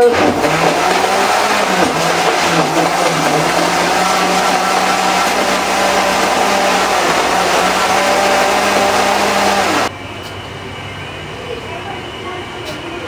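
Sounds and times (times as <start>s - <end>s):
electric blender running: 0.0s - 9.9s.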